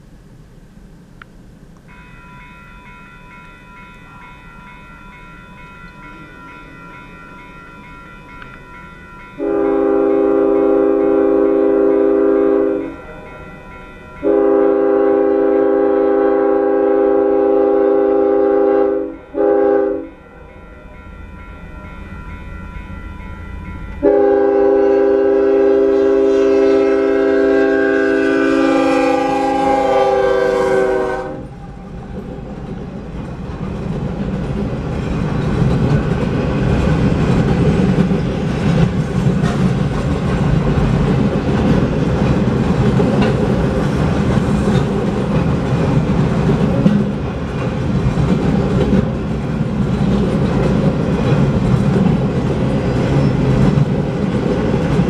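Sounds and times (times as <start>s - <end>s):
train wheels rumbling on rail: 3.9s - 55.0s
locomotive horn: 9.4s - 13.0s, 14.2s - 20.2s, 24.0s - 31.6s.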